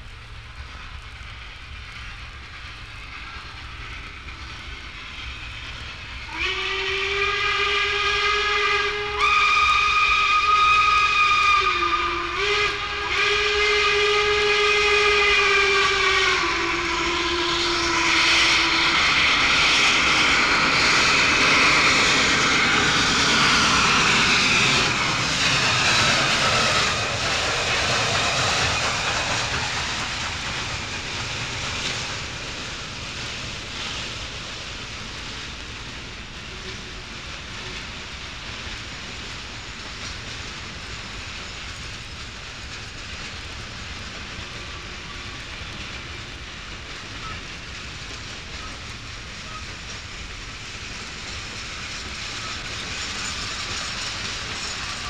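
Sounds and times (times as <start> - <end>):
rush of train passing: 0.0 - 55.0
steam locomotive chime whistle: 6.3 - 29.1, 47.2 - 47.5.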